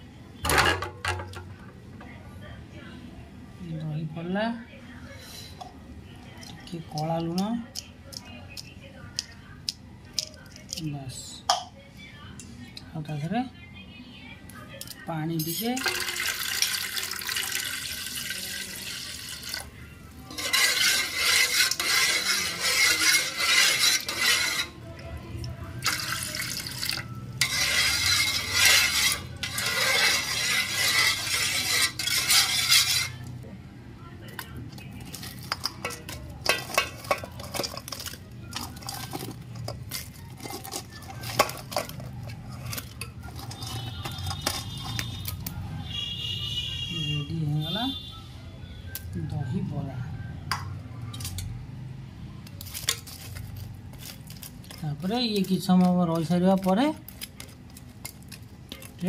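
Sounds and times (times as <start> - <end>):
water pouring into bowl: 15.8 - 19.7
spoon clinking against metal bowl: 35.1 - 42.0, 42.7 - 45.3.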